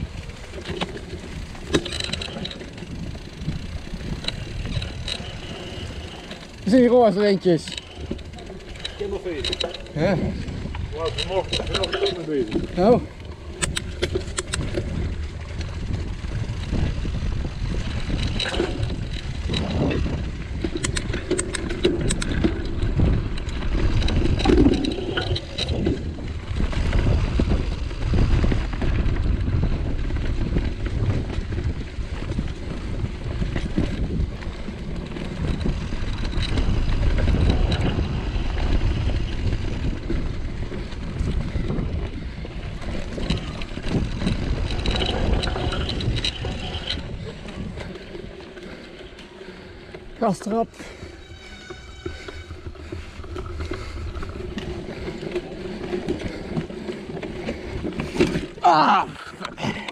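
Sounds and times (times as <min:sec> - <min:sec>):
bike rattling: 0:00.0 - 0:59.9
bike tyres rolling on dirt: 0:00.0 - 0:59.9
wind on microphone: 0:08.0 - 0:49.7.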